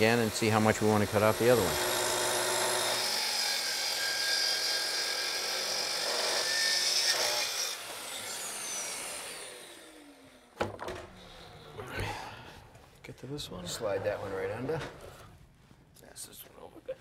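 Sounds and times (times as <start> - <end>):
track saw cutting wood: 0.0 - 10.5.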